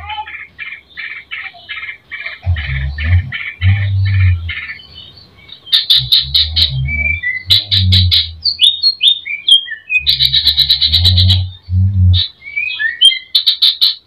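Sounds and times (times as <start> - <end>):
bird singing: 0.0 - 14.0
low hum: 2.4 - 8.8, 10.0 - 12.3.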